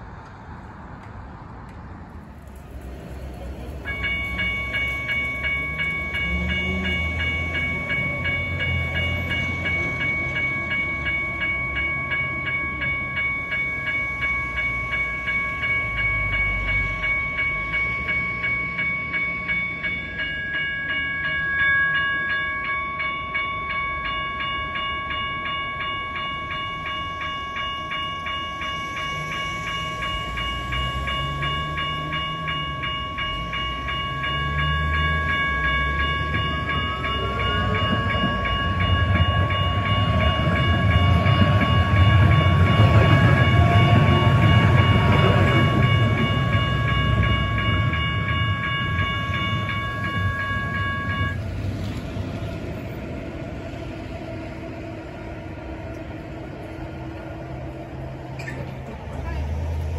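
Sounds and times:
train rumble: 0.0 - 59.9
railway crossing bells ringing: 2.1 - 59.9.

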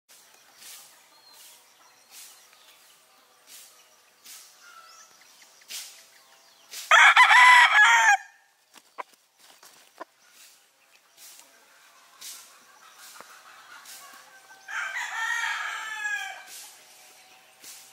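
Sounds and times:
young rooster crowing: 6.9 - 8.4, 14.6 - 16.5.

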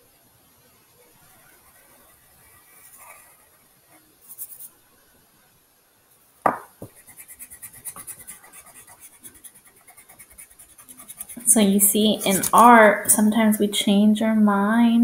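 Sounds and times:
pencil scratching on paper: 1.3 - 3.6, 6.8 - 12.6
sharp knock: 6.5 - 7.0.

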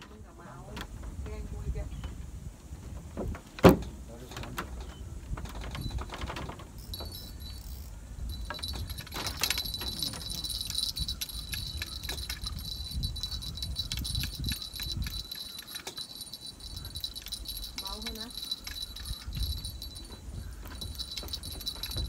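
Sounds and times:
high metallic ringing and jingling: 5.7 - 22.0
fishing reel clicking: 6.8 - 20.0.

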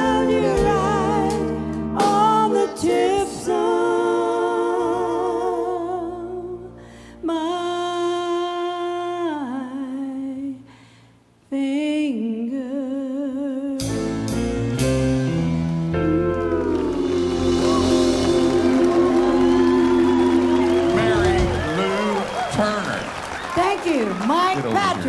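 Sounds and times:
soft band backing: 0.0 - 9.1, 13.8 - 25.0
woman singing a country ballad: 0.0 - 10.6, 11.5 - 13.8.

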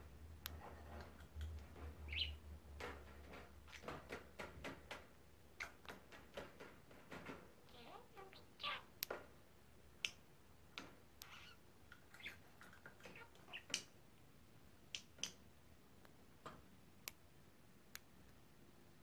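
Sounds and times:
bird clicks and taps: 2.8 - 7.4.

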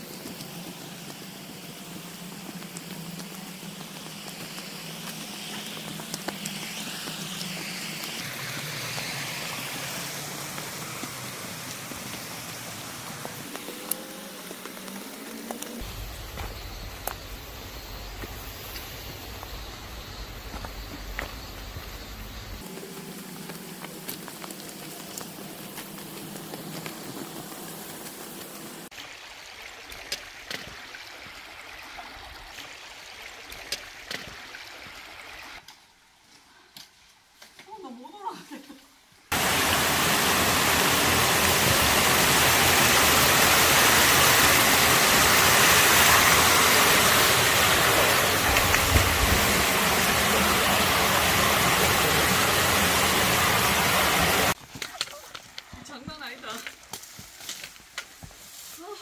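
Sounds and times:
footsteps crunching over rocks: 0.0 - 9.2, 10.4 - 28.9, 54.6 - 59.0
steady hiss: 0.0 - 30.4, 38.5 - 59.0
water pouring over ledge: 39.3 - 54.6.

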